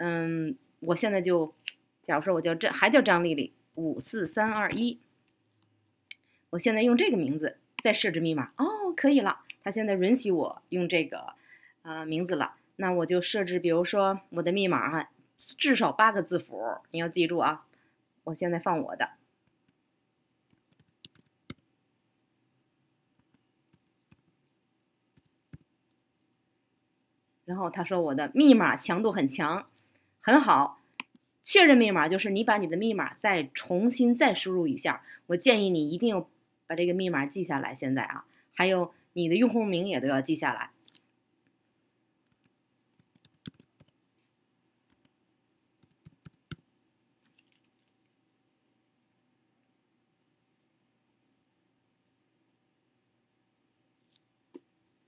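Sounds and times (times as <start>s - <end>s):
keyboard typing: 20.5s - 21.6s, 23.2s - 24.4s, 42.2s - 45.2s, 45.8s - 46.6s, 47.3s - 48.0s
keyboard keystrokes: 42.3s - 43.9s.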